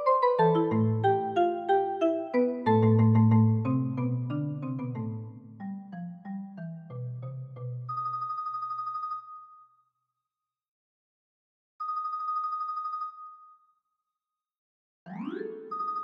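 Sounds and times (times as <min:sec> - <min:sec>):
marimba upward run: 0:00.0 - 0:07.9.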